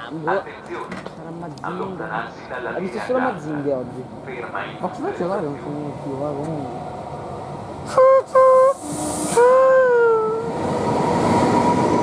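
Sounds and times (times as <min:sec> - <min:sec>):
locomotive horn blasts: 0:07.9 - 0:09.9.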